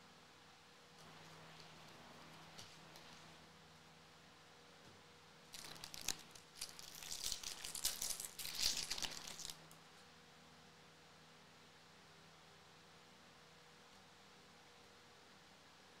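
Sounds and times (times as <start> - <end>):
foil wrapper crinkling: 5.5 - 9.7.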